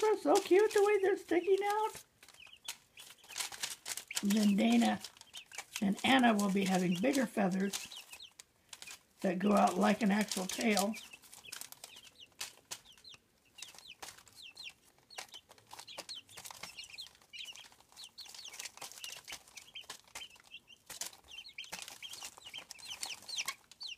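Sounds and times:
chicks peeping: 0.0 - 23.9.

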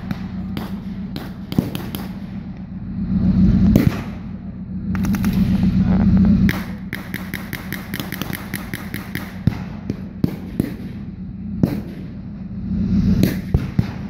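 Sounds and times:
blank gunshots: 0.0 - 2.5, 3.7 - 4.3, 6.5 - 12.2, 13.2 - 14.0
low engine rumble: 0.0 - 14.0.

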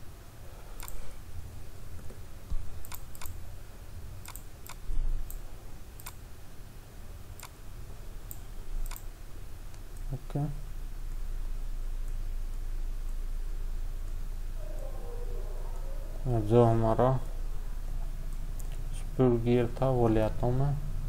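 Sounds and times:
steady low hum: 0.0 - 21.0
computer mouse clicking: 0.8 - 1.1, 2.0 - 3.4, 4.2 - 5.4, 6.0 - 6.2, 7.4 - 7.6, 8.3 - 9.1.

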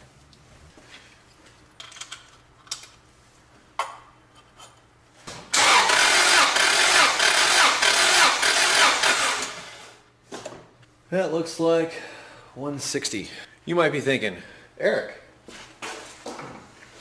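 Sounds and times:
engine cranking without firing: 5.5 - 9.6.

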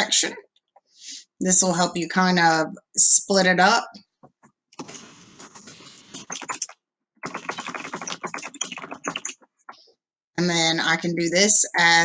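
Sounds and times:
computer keyboard typing: 5.5 - 9.5.

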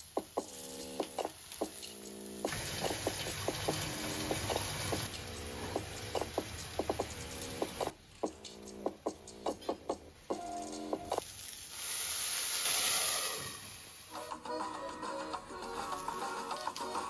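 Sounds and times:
potatoes sizzling in oil: 0.0 - 7.9, 11.2 - 14.2
plucked ringing background music: 8.3 - 11.2.

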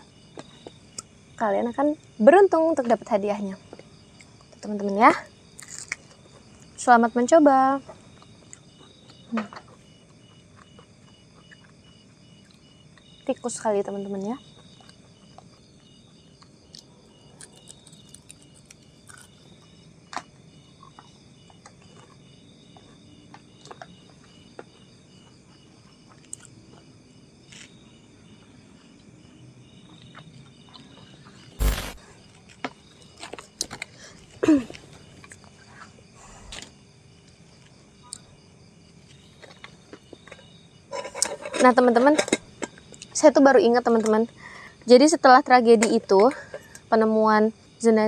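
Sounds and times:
crickets chirping: 0.0 - 48.0
loud sharp knock: 31.6 - 32.1.

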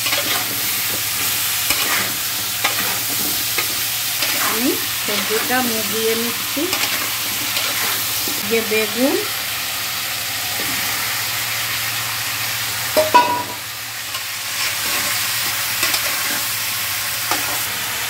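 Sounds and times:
food sizzling in hot oil: 0.0 - 18.0
sharp metallic clank: 13.0 - 13.7.

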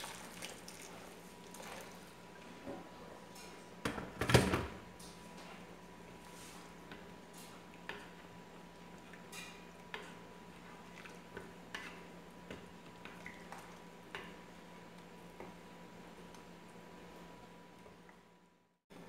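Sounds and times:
wooden spoon stirring in pot: 5.4 - 18.0.

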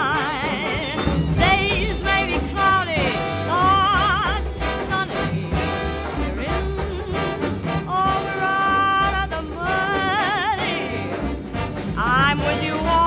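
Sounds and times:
woman singing: 0.0 - 11.4, 12.0 - 13.0
big band with brass: 0.0 - 13.0.

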